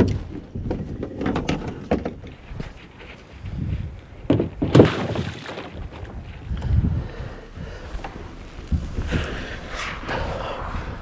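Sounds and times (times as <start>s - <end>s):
loud thumps: 4.3s - 6.2s.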